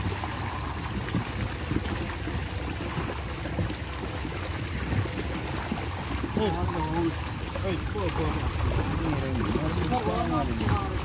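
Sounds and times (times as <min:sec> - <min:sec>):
steady low rumble: 0:00.0 - 0:11.0
water splashing and sloshing: 0:00.0 - 0:11.0.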